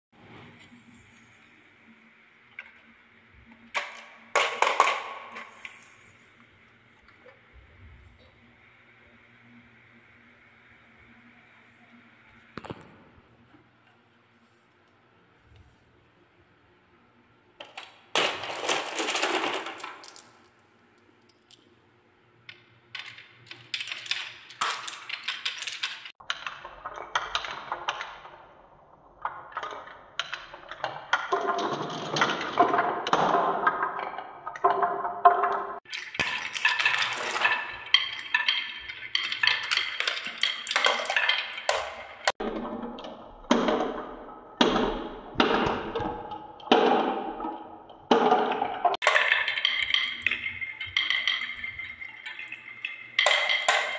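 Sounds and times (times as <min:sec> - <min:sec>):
marbles clattering on wooden tracks: 0:02.4 - 0:06.1, 0:17.6 - 0:21.8, 0:22.4 - 0:53.9.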